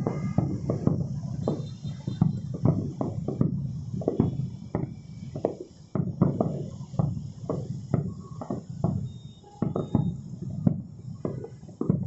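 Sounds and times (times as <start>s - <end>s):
firework shells bursting: 0.0s - 12.0s.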